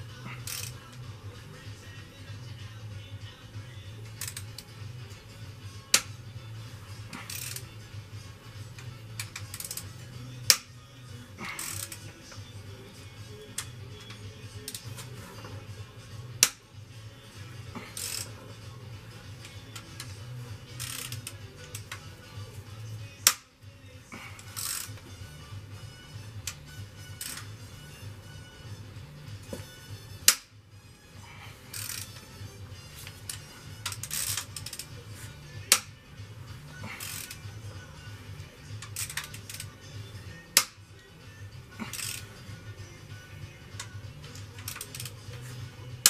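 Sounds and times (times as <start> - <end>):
background music: 0.0 - 46.0
wrench rasp: 0.3 - 1.1, 4.1 - 4.7, 7.1 - 7.7, 8.8 - 10.7, 11.4 - 12.1, 17.7 - 18.7, 19.4 - 22.0, 24.3 - 25.0, 26.5 - 27.6, 31.6 - 32.4, 33.2 - 35.0, 36.7 - 37.5, 38.8 - 39.7, 41.8 - 42.5, 44.6 - 45.2
wrench metallic crack: 0.4 - 1.0, 4.2 - 4.7, 5.9 - 6.2, 7.1 - 7.7, 8.8 - 10.8, 11.4 - 12.1, 16.4 - 16.6, 17.8 - 18.4, 19.4 - 22.0, 23.2 - 23.5, 24.4 - 25.0, 27.2 - 27.6, 30.2 - 30.6, 31.7 - 32.3, 33.2 - 34.9, 35.7 - 36.0, 36.9 - 37.4, 38.8 - 39.7, 40.5 - 40.8, 41.8 - 42.4, 43.8 - 45.2.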